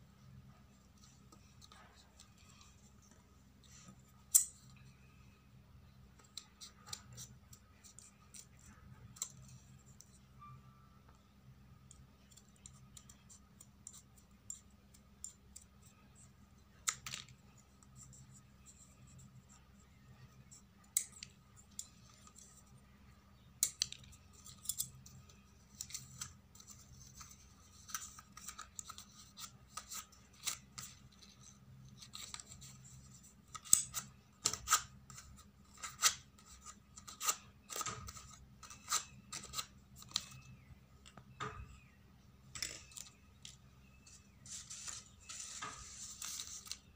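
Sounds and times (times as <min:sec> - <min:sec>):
scissors snipping paper: 0:23.6 - 0:40.4.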